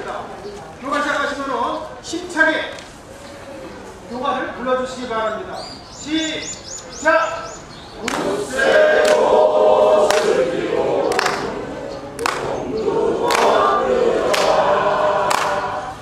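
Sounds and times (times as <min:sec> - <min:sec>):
hand claps: 0:08.0 - 0:08.4, 0:09.0 - 0:09.3, 0:10.1 - 0:10.4, 0:11.1 - 0:11.6, 0:12.2 - 0:12.6, 0:13.2 - 0:13.7, 0:14.3 - 0:14.7, 0:15.3 - 0:15.7
group singing: 0:08.0 - 0:16.0.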